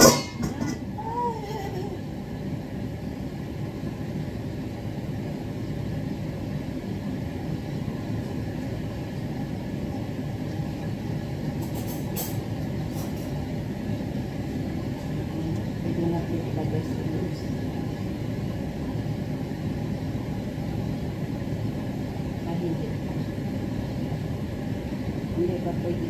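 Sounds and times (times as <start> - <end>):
broth boiling and bubbling: 0.0 - 26.0.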